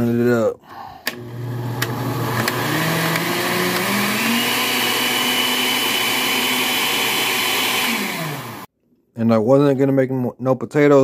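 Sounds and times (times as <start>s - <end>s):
blender motor whining: 1.1s - 8.7s.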